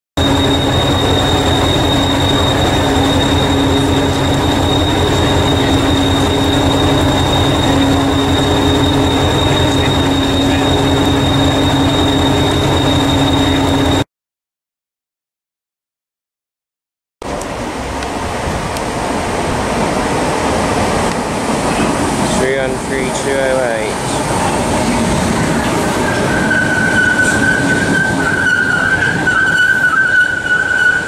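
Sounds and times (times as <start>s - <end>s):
diesel train engine idling: 0.2s - 14.0s, 17.2s - 31.0s.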